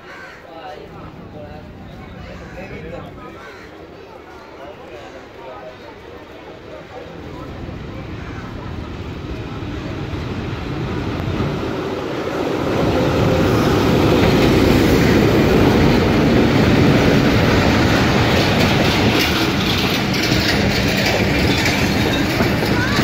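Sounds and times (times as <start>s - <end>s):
diesel locomotive passing: 0.0s - 23.0s
train wheels clacking over rail joints: 13.2s - 23.0s.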